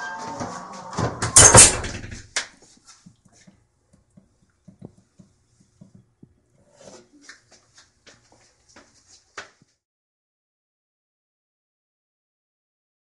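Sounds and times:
door clattering shut: 1.0 - 2.4
faint knocks and ticks: 3.0 - 6.4.

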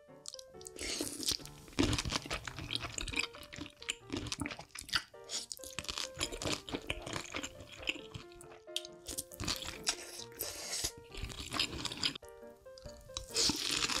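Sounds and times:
soft background music: 0.0 - 14.0
close chewing and wet mouth sounds: 0.3 - 12.2.

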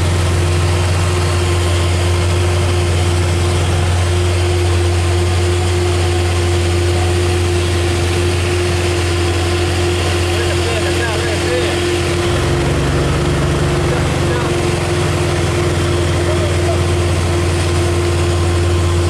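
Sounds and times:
truck diesel engine under load: 0.0 - 19.0.

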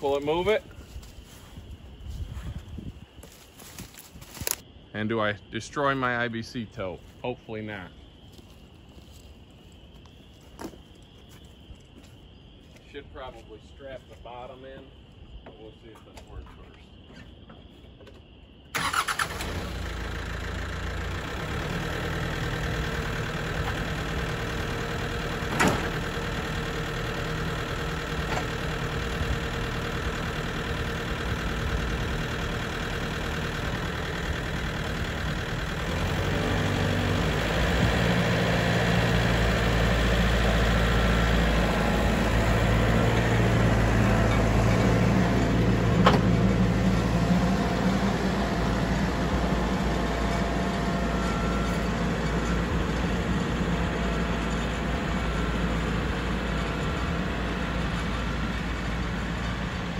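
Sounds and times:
tractor diesel engine running: 0.0 - 5.1, 18.8 - 59.9.

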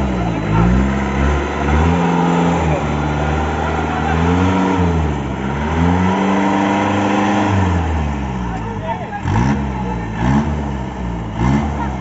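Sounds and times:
engine revving: 0.0 - 12.0.

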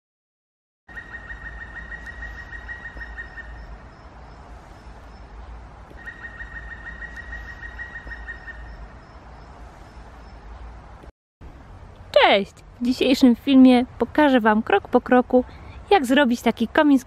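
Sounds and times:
bird chirping high: 0.9 - 10.6
steady low rumble: 1.0 - 14.7.

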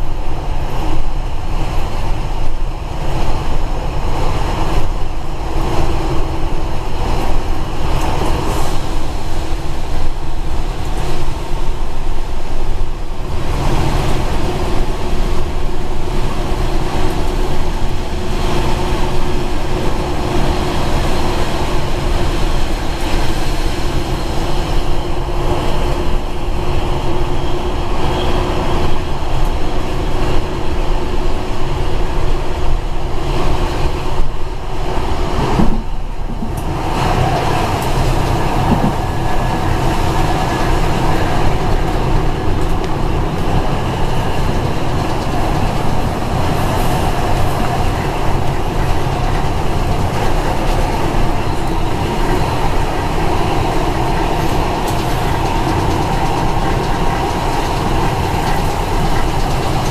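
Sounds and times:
railcar rumbling through tunnel: 0.0 - 59.9.

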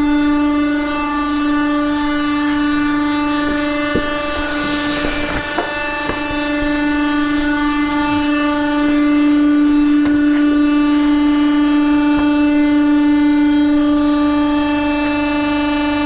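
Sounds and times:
electric motor hum: 0.0 - 16.0.

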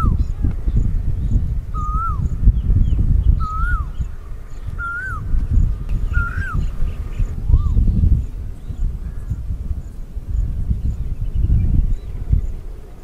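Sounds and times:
bird whistling call: 1.7 - 2.4, 3.2 - 4.1, 4.7 - 5.3, 6.0 - 7.8.

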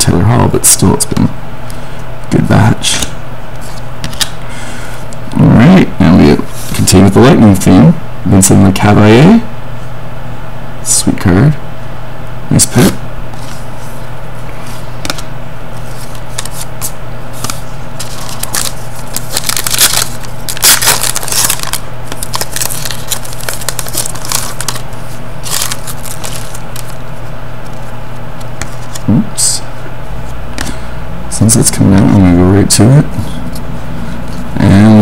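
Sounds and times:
steady low hum: 0.0 - 35.0
cards being shuffled: 2.9 - 4.4, 14.7 - 29.1
foil wrapper crinkling: 16.0 - 27.8.

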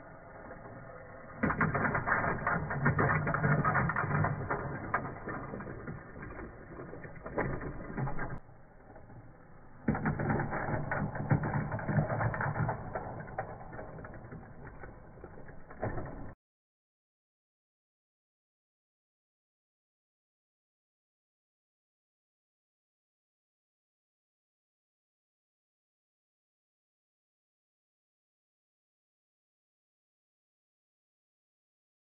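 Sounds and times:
toy train clattering on plastic track: 0.7 - 16.4.

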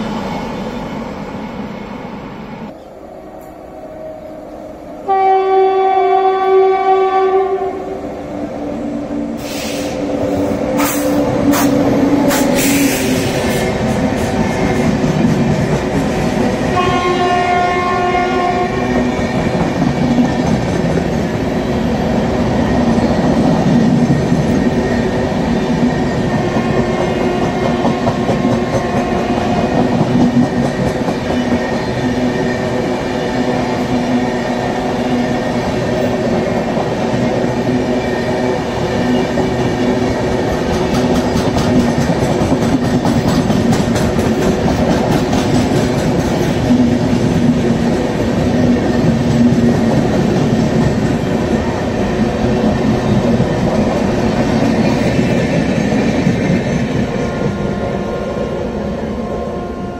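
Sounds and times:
train wheels rushing on rails: 0.0 - 59.9
train horn: 5.0 - 13.7, 16.7 - 19.3, 26.4 - 29.9, 59.1 - 59.9.

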